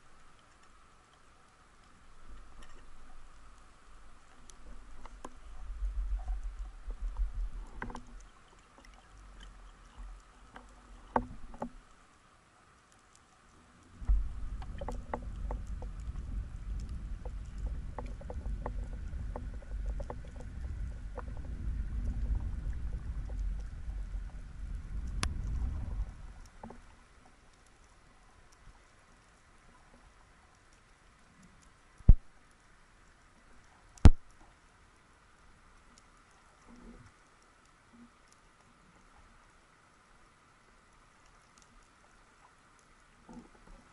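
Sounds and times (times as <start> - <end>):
sharp clicks and crackles: 0.1 - 32.7, 33.4 - 34.6, 41.2 - 43.9
low underwater rumble: 2.0 - 12.0, 13.8 - 30.3.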